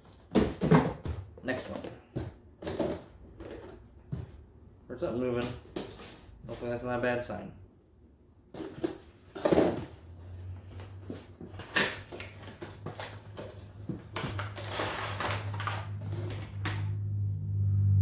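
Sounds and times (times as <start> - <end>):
low steady hum: 1.2 - 18.0.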